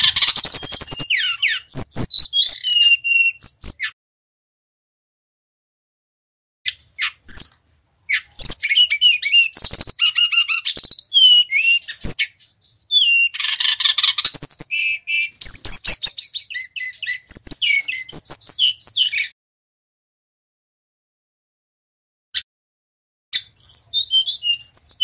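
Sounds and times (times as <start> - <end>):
bird singing whistles and chirps: 0.0 - 4.0, 6.7 - 19.4, 23.3 - 25.0.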